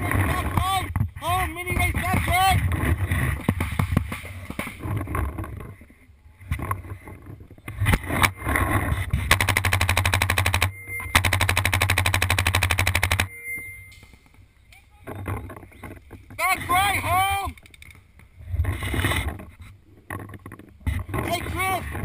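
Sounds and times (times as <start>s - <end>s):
paintball marker rapid firing: 9.2s - 13.3s.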